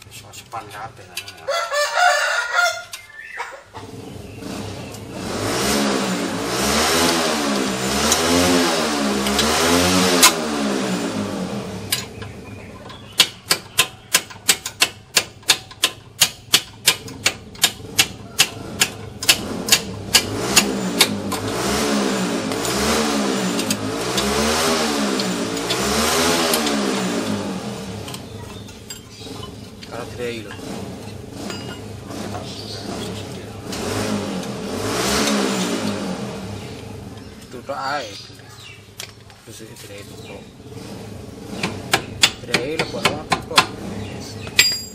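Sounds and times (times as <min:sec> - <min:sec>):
engine-like drone rising and falling: 0:03.8 - 0:12.2, 0:19.2 - 0:37.2
sharp metallic knocks: 0:11.9 - 0:21.8, 0:22.5 - 0:32.6, 0:41.5 - 0:43.8, 0:44.4 - 0:44.9.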